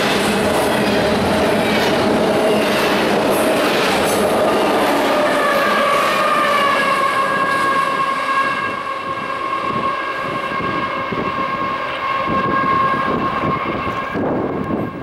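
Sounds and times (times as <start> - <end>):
train wheels clattering on rail: 0.0 - 7.8.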